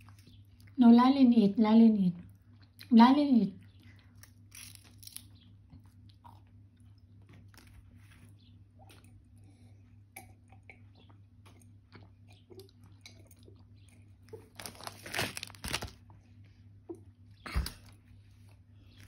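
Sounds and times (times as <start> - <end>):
toddler chewing crisps: 3.7 - 9.4, 11.5 - 16.2.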